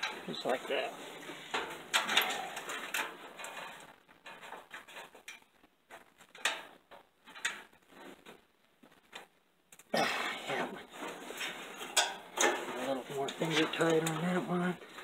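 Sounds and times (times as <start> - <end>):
metal clicks and rattles of tools: 1.2 - 5.5, 11.0 - 14.2.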